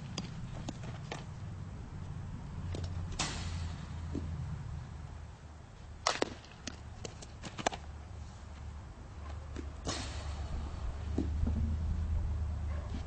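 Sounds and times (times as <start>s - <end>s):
loud crack: 3.1s - 3.9s, 9.8s - 10.5s
wind rumble on microphone: 10.2s - 13.0s.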